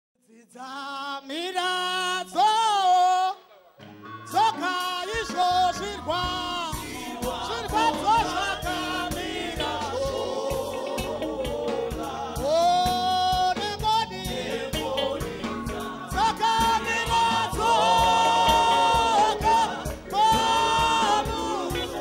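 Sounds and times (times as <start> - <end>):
drums and bass beat: 4.3 - 22.0
woman singing gospel: 4.4 - 22.0.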